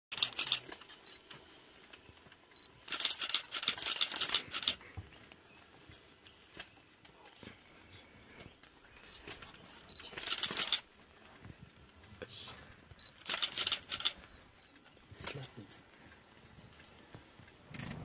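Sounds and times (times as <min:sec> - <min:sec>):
camera shutter clicking: 0:00.2 - 0:00.7, 0:02.9 - 0:04.8, 0:10.2 - 0:10.8, 0:13.2 - 0:14.2.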